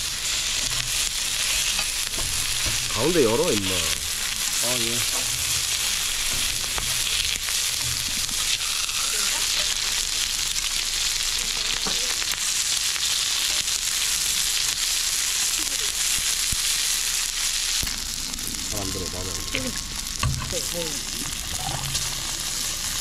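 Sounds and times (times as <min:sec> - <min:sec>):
meat sizzling in frying: 0:00.0 - 0:23.0.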